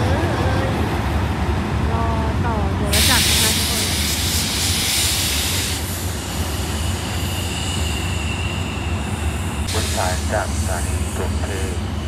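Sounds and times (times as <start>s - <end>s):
train engine rumble: 0.0s - 12.0s
air hiss: 2.9s - 8.6s
high-pitched wheel squeal: 6.3s - 9.7s.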